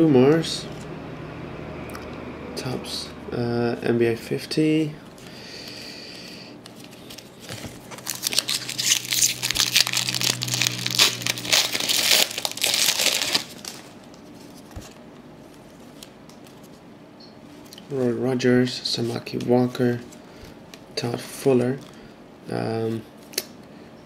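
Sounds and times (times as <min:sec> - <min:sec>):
foil wrapper tearing and crinkling: 0:06.8 - 0:14.0.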